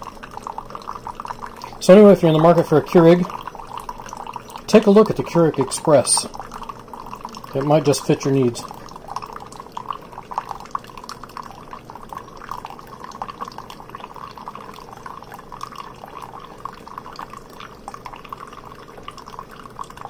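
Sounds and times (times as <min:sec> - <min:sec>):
coffee trickling into a mug: 0:00.0 - 0:20.0.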